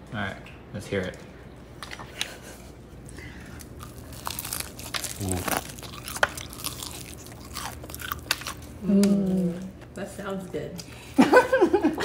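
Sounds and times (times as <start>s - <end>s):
fried chicken crunching: 3.4s - 9.4s.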